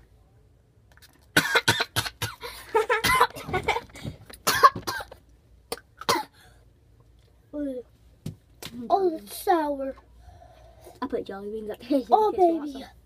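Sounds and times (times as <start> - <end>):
child coughing and spluttering: 1.3 - 3.8, 4.4 - 6.4.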